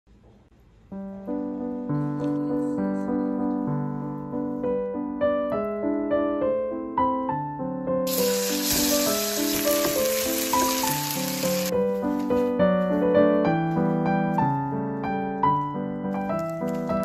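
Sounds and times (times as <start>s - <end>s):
solo piano music: 0.9s - 17.0s
fish sizzling in a pan: 8.1s - 11.7s.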